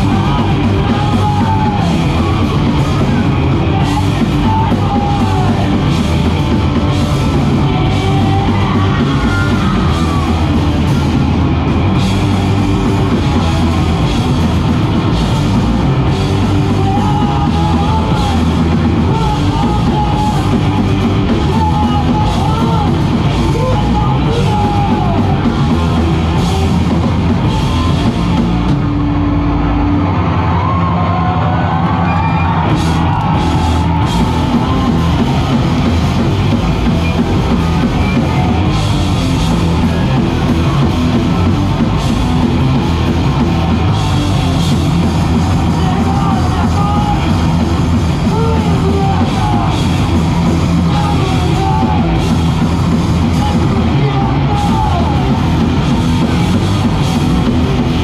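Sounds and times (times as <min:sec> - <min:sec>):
shouted vocals: 0:00.0 - 0:28.7, 0:29.6 - 0:58.0
bass guitar: 0:00.0 - 0:58.0
distorted guitars: 0:00.0 - 0:58.0
drum kit: 0:00.0 - 0:58.0.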